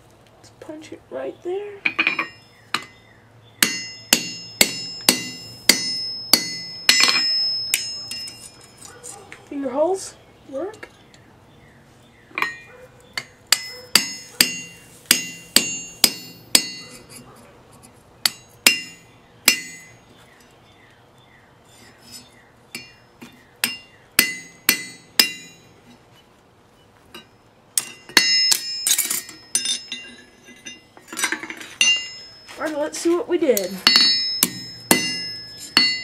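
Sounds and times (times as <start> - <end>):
hammer striking punch on anvil: 3.6 - 8.5, 13.2 - 17.0, 18.2 - 20.0, 23.6 - 25.7, 27.2 - 30.1, 33.8 - 36.0.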